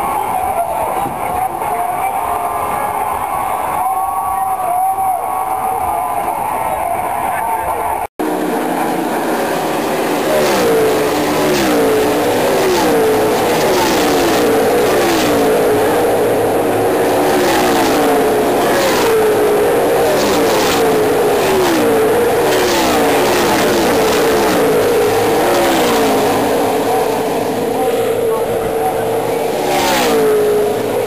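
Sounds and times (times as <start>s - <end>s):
continuous engine drone: 5.1s - 31.0s
race cars passing at speed: 8.0s - 31.0s.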